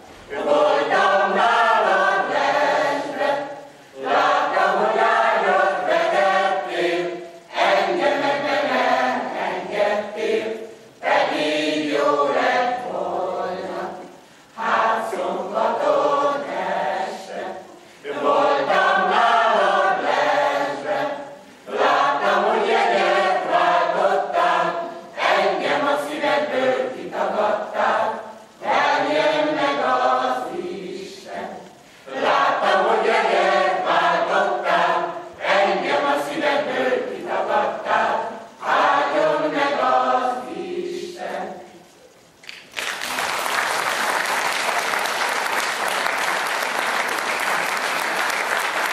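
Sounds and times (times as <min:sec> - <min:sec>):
mixed choir singing unaccompanied: 0:00.0 - 0:42.0, 0:43.7 - 0:48.9
audience applause: 0:42.4 - 0:48.9.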